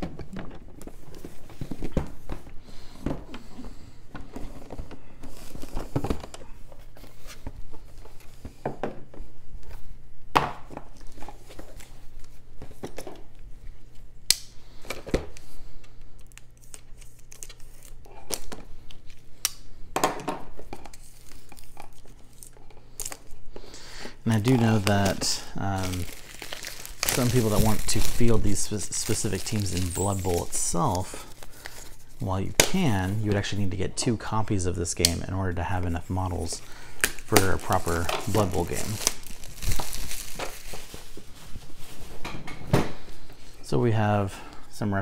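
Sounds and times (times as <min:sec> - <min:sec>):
plastic crinkling: 0:24.3 - 0:32.3, 0:36.2 - 0:42.3.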